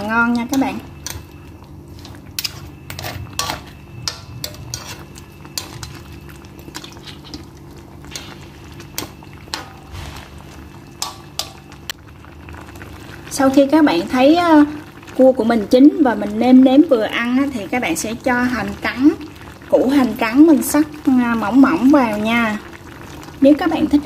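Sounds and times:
sauce simmering: 0.0s - 24.0s
metal spatula scraping a wok: 0.4s - 6.0s, 6.6s - 7.5s.

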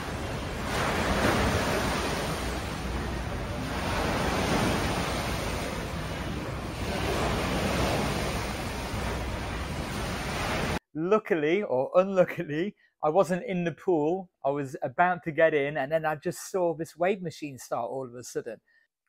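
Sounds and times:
pool water sloshing in waves: 0.0s - 10.8s.

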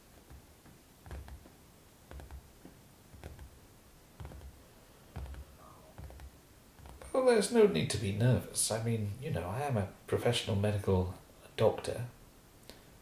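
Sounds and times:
soft rustles: 0.0s - 7.2s.

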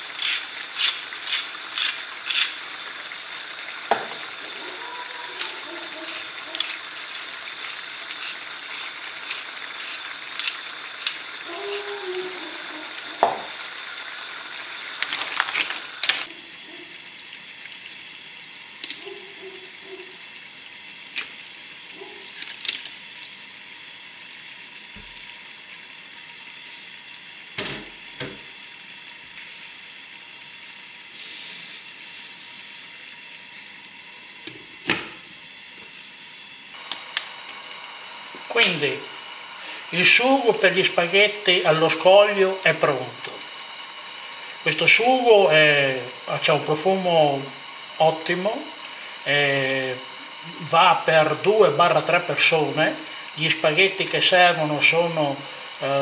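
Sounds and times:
pepper mill grinding: 0.0s - 13.8s, 14.8s - 16.7s, 17.6s - 26.0s, 35.5s - 56.0s
sauce sizzling in frying pan: 0.0s - 56.0s
wooden spoon stirring shells: 4.1s - 11.3s, 15.0s - 16.3s.

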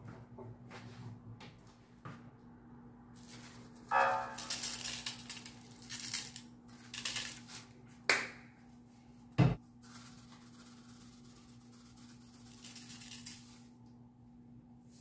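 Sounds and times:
seasoning rattling in shaker bottle: 3.2s - 7.7s, 9.8s - 13.7s.

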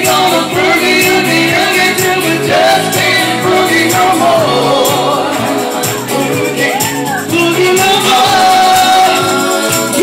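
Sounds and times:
live band playing: 0.0s - 10.0s
person singing: 0.0s - 10.0s
steady drum beat: 0.0s - 10.0s.

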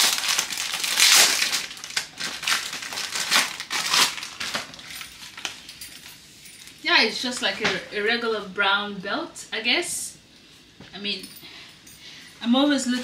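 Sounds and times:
packaging crinkling and rustling: 0.0s - 6.8s.

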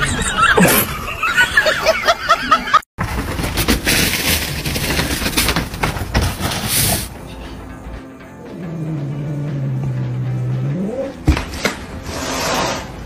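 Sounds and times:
rustling noise: 3.0s - 7.2s.

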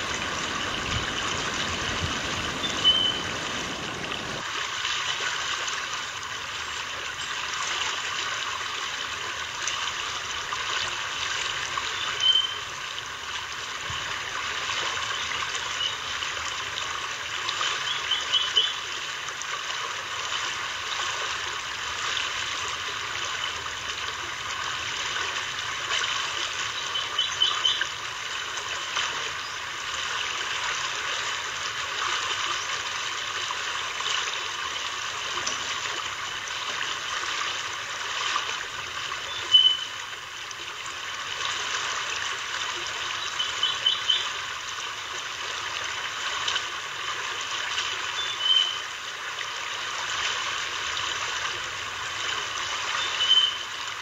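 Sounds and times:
water rushing: 0.0s - 54.0s
high chirps: 2.5s - 4.4s.

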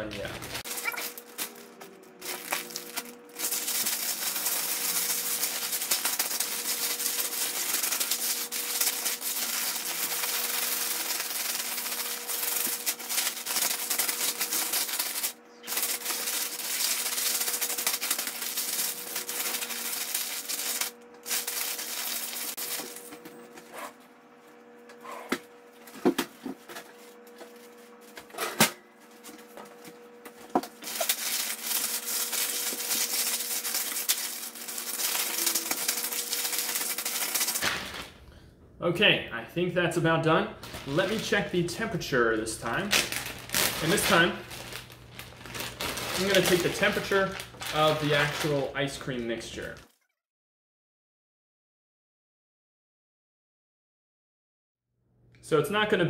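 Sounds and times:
plastic bag of ice rustling: 0.0s - 23.1s, 30.6s - 38.2s, 40.6s - 49.9s.

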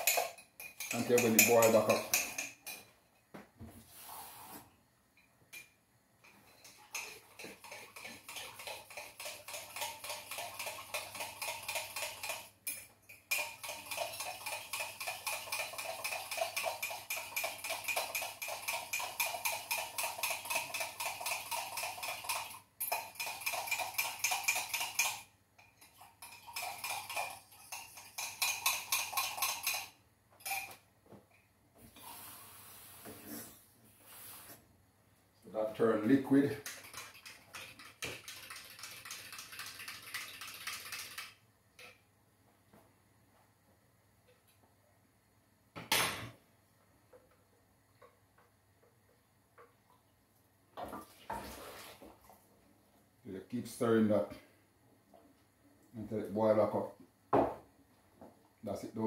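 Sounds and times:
spoon clinking in a mug: 0.0s - 2.9s, 6.3s - 30.8s.

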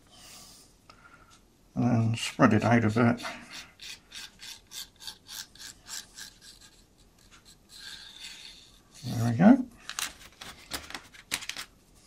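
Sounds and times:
scratching strokes on wood: 2.2s - 9.4s.

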